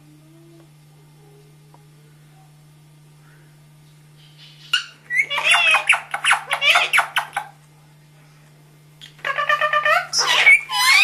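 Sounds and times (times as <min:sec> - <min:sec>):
low steady hum: 0:00.0 - 0:11.0
parakeet chattering: 0:04.2 - 0:07.6, 0:09.2 - 0:11.0.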